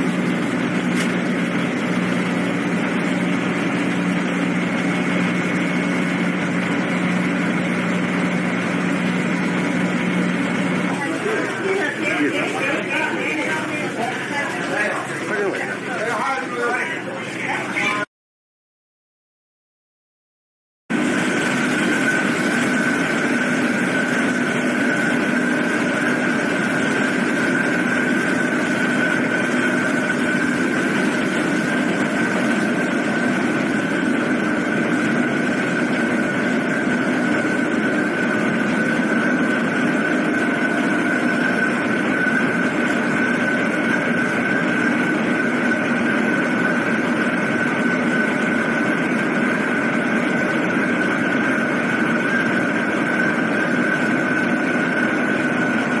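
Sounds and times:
ferry engines droning: 7.4 - 18.0.

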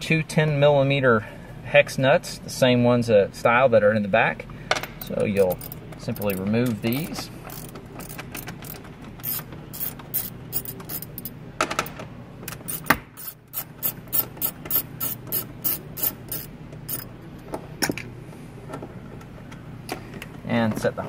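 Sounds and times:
socket ratchet clicking: 5.0 - 11.3, 12.5 - 17.1.

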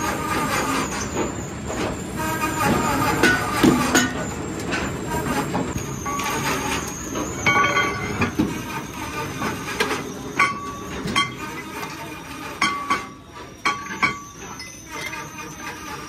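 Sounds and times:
machine running noise: 0.0 - 16.0
metal rim clanking and ringing: 3.2 - 4.3, 5.8 - 8.7, 9.8 - 16.0.

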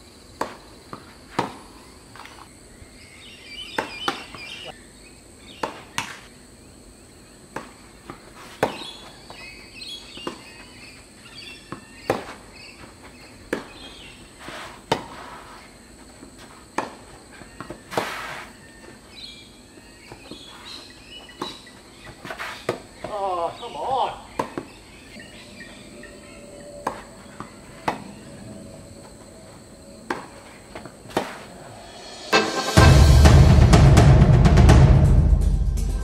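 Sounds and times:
high insect whine: 0.0 - 33.2
tennis ball struck by rackets: 0.4 - 1.7, 3.7 - 4.6, 5.6 - 6.2, 7.5 - 9.4, 10.1 - 10.6, 11.7 - 12.4, 13.4 - 14.0, 24.3 - 24.8, 26.8 - 28.1, 30.1 - 31.5
tennis ball bouncing: 0.4 - 2.4, 3.7 - 4.7, 5.6 - 6.2, 7.5 - 9.4, 10.1 - 10.7, 11.6 - 12.4, 13.4 - 14.0, 21.3 - 23.2, 24.3 - 24.8, 26.8 - 28.2, 30.0 - 31.5
birds chirping: 1.6 - 14.5, 17.2 - 32.0.

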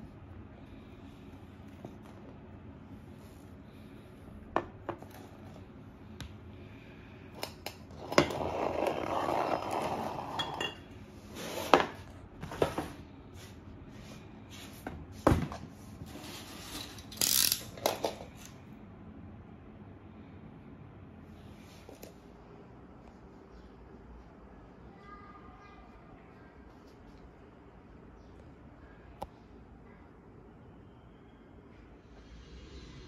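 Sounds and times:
scraping on wooden floor: 8.0 - 10.6, 11.3 - 13.0.

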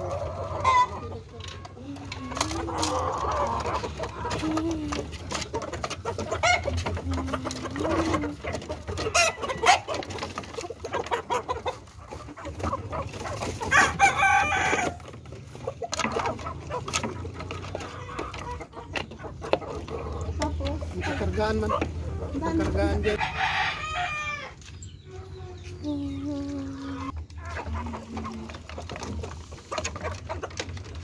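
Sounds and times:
chickens clucking: 0.0 - 31.0
rooster crowing: 23.2 - 24.6.

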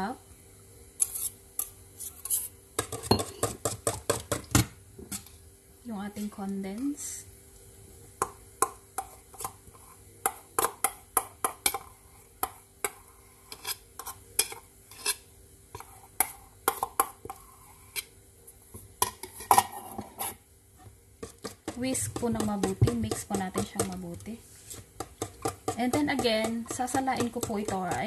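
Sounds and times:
spoon scraping steel bowl: 1.0 - 3.5, 12.4 - 15.2.

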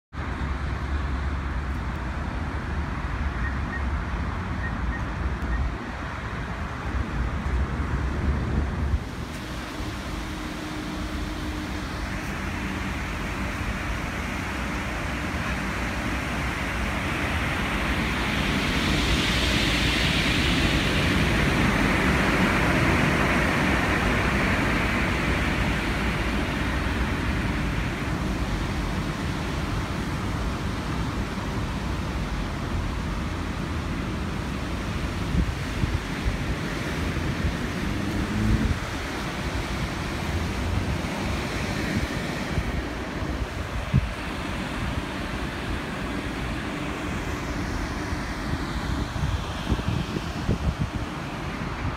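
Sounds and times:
road traffic: 0.1 - 51.9
wind buffeting microphone: 1.5 - 51.9
vehicle passing: 36.5 - 43.5.

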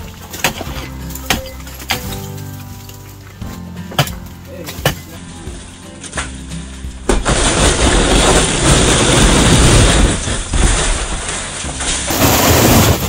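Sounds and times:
snow sliding off metal roof: 7.2 - 13.0.

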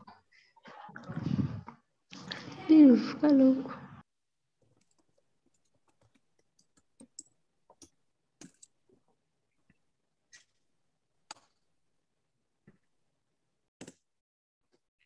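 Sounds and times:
faint irregular clicks: 4.6 - 10.6.

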